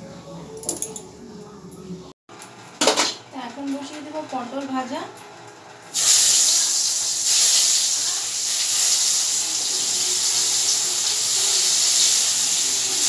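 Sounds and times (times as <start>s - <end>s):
vegetable slices sizzling in hot oil: 5.9s - 13.0s.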